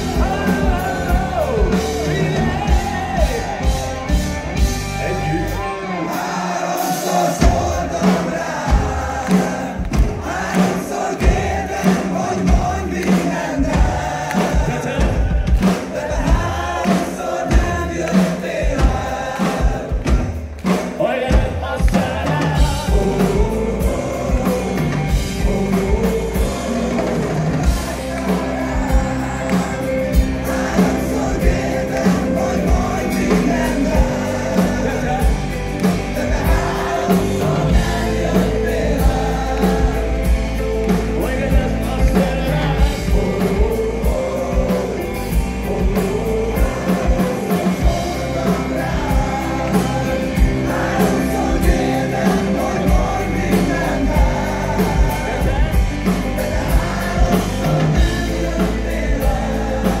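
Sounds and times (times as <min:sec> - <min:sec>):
man singing: 0:00.0 - 1:00.0
rock band playing live: 0:00.0 - 1:00.0
steady drum beat: 0:00.0 - 1:00.0.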